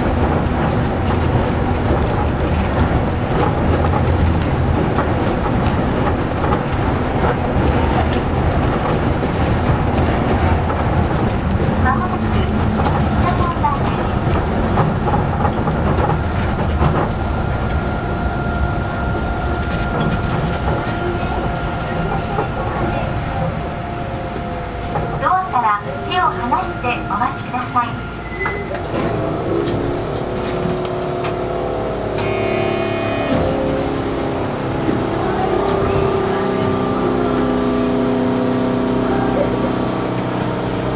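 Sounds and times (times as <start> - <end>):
train tyres rumbling: 0.0 - 40.9
thin high tone: 32.2 - 33.8.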